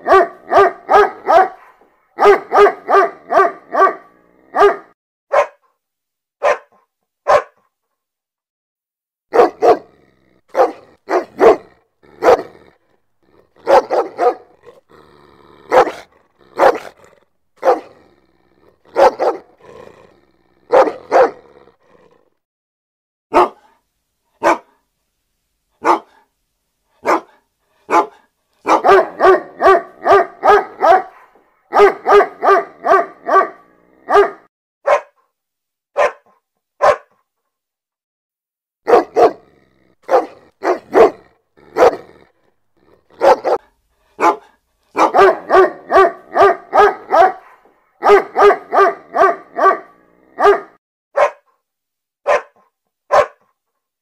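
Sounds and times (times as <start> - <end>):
dog barking: 0.0 - 5.8, 6.4 - 7.7, 9.3 - 12.7, 13.4 - 14.8, 15.6 - 18.1, 18.8 - 19.7, 20.6 - 21.6, 23.3 - 23.8, 24.4 - 24.8, 25.8 - 26.3, 27.0 - 35.3, 36.0 - 37.2, 38.8 - 51.6, 52.2 - 53.5.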